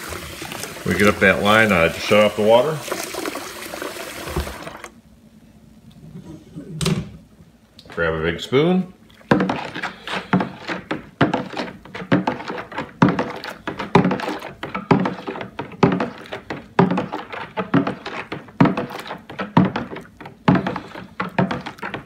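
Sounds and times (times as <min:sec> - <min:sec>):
water swishing: 0:00.0 - 0:04.9
spoon knocking plastic cooler: 0:09.3 - 0:22.0.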